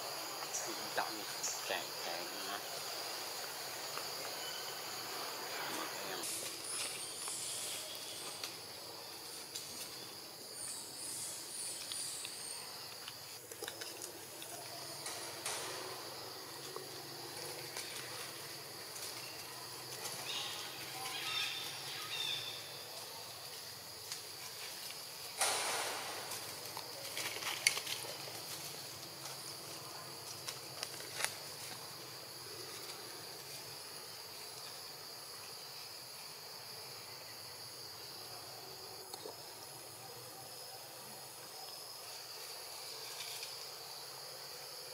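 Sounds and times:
high-pitched insect drone: 0.0s - 13.3s
rustling in dry leaves: 5.3s - 10.3s, 17.0s - 34.1s.

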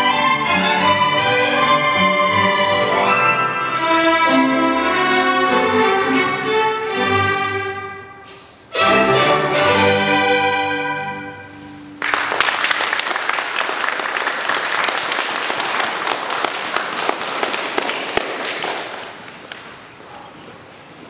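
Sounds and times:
violin ensemble chord: 0.0s - 12.0s
audience applauding: 12.0s - 19.8s.

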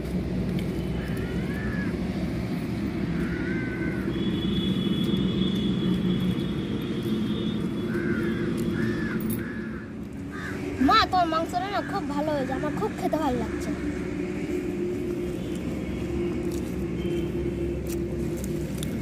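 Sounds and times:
distant engine drone: 0.0s - 19.0s
crows cawing: 0.8s - 5.6s, 7.0s - 12.7s.

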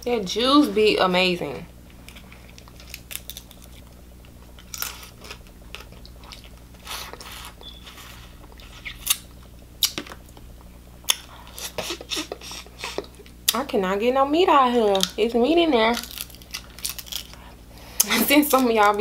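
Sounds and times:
crab shell cracking: 2.0s - 6.7s, 15.9s - 17.5s.

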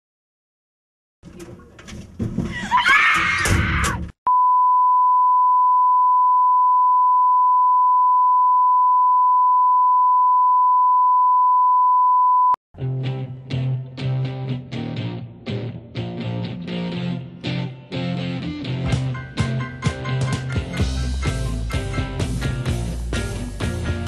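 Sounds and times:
steady electronic beep tone: 4.3s - 12.6s
guitar music: 12.8s - 24.0s.

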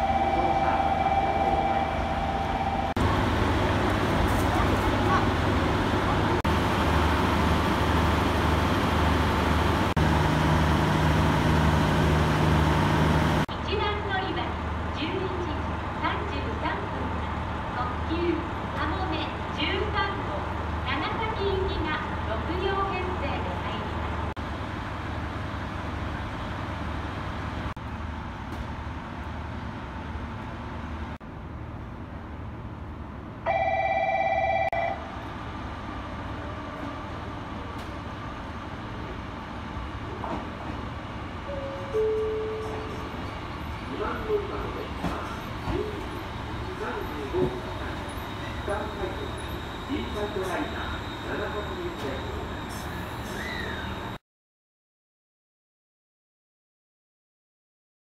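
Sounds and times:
electronic platform bell ringing: 0.0s - 2.9s, 33.5s - 35.0s
diesel railcar engines idling: 0.0s - 33.5s, 34.9s - 54.2s.

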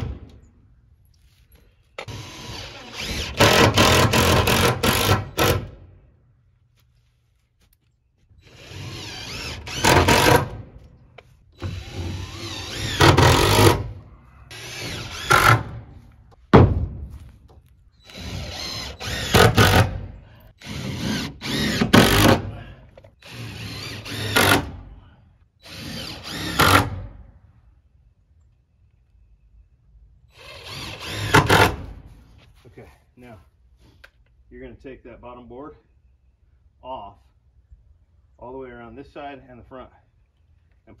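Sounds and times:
power driver driving screws into wood: 2.0s - 5.8s, 8.4s - 10.7s, 11.6s - 13.9s, 14.5s - 15.9s, 18.0s - 24.9s, 25.6s - 27.2s, 30.4s - 32.0s.

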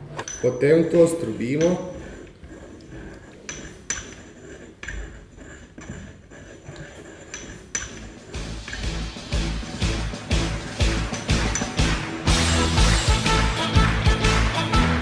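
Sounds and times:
pestle grinding in ceramic mortar: 0.0s - 13.4s
pestle clinking against bowl: 0.2s - 0.6s, 1.4s - 2.4s, 10.8s - 12.0s.

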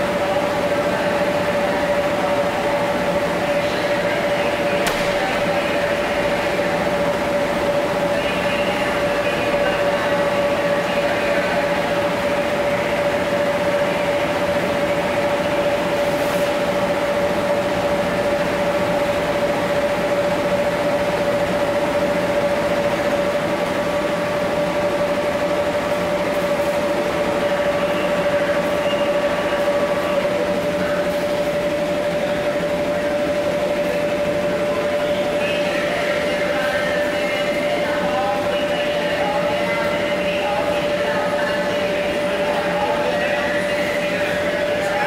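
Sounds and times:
electric blowers droning: 0.0s - 45.0s.

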